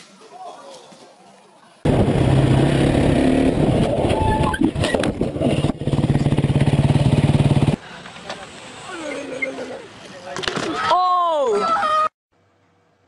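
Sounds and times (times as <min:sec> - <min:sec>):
dirt bike engine running: 0:01.9 - 0:04.0, 0:04.7 - 0:07.8.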